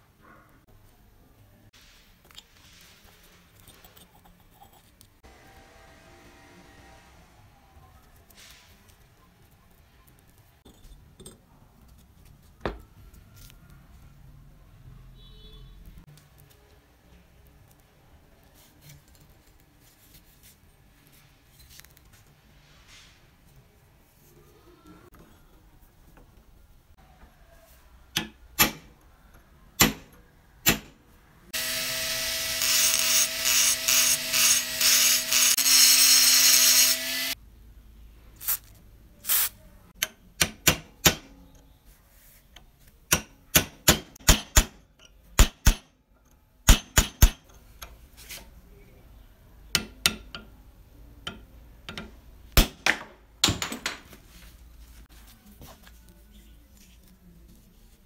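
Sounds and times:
hammer tapping steel punch: 28.2 - 29.0, 29.8 - 31.0, 40.0 - 41.4, 43.1 - 45.9, 46.7 - 47.5, 49.7 - 50.6, 51.3 - 53.8
small power tool whining: 31.6 - 37.4.

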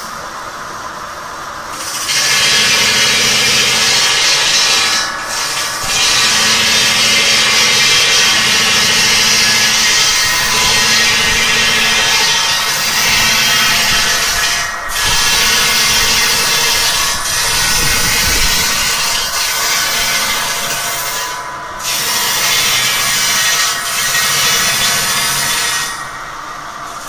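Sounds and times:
circular saw grinding through stone: 1.7 - 26.2.

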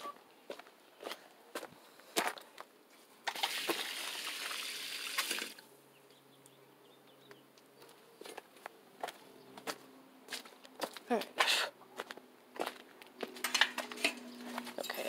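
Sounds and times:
water rushing from hose: 3.3 - 5.6.

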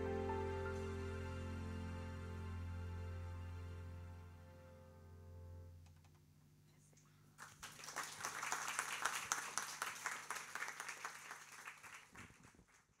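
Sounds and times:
audience applauding: 7.4 - 13.0.

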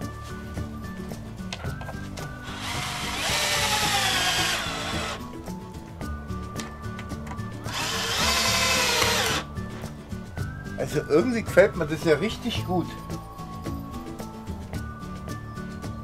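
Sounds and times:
cordless drill driving screws: 2.4 - 5.3, 7.7 - 9.5.

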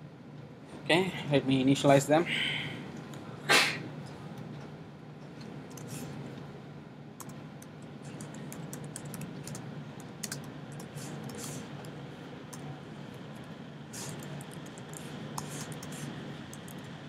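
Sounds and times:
faint low hum: 0.0 - 17.0
keyboard typing: 7.2 - 17.0.

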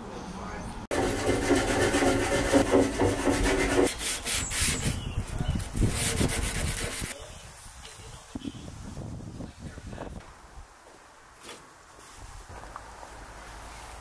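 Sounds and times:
abrasive scrubbing on steel: 0.9 - 7.2.

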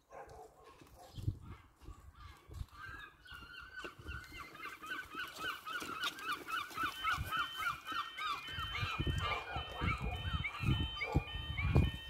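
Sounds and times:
level crossing alarm warbling: 4.9 - 12.0.

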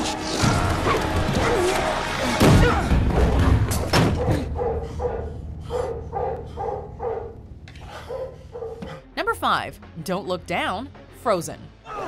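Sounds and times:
dog barking fiercely: 4.2 - 7.4.

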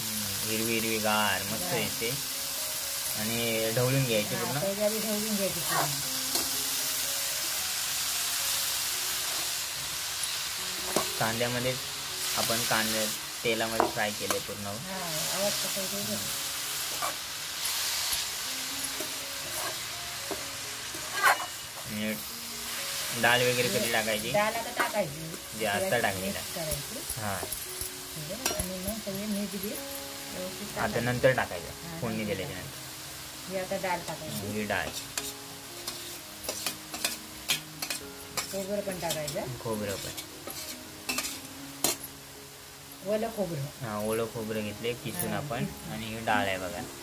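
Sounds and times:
greens sizzling in hot oil: 0.0 - 47.0
steel spoon scraping a pan: 16.8 - 25.1, 34.3 - 42.1
ladle scraping a pan: 19.4 - 21.6, 34.9 - 38.6, 39.9 - 42.0.

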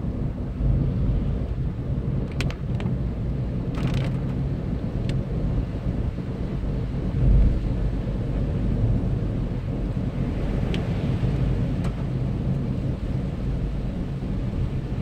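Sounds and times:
car driving on wet road: 0.0 - 15.0
sharp ticks and crackle: 2.2 - 3.0, 3.7 - 4.4.

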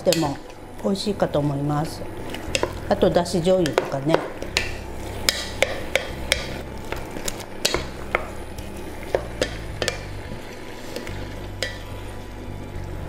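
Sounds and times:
food sizzling softly: 0.0 - 13.0
wooden spatula knocking on pot: 3.6 - 7.0, 7.6 - 8.4, 9.1 - 10.1.

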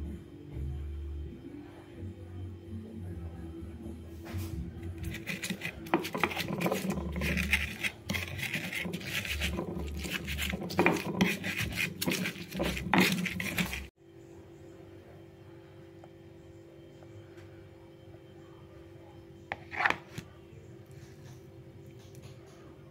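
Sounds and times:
stone pestle scraping on mortar: 4.9 - 13.9, 19.5 - 20.1.

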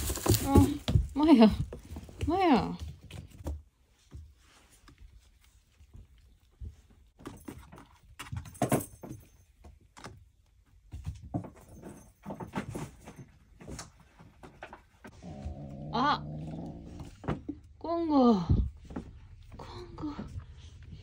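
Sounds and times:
kittens' paws pattering: 0.0 - 8.4
knocks and rattles: 7.2 - 10.2, 10.9 - 15.1.

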